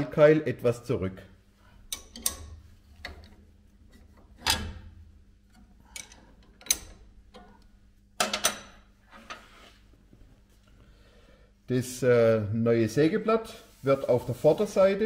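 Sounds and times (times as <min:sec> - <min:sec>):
wrench clicking and knocking: 0:01.9 - 0:03.4, 0:05.5 - 0:07.6, 0:08.2 - 0:08.8.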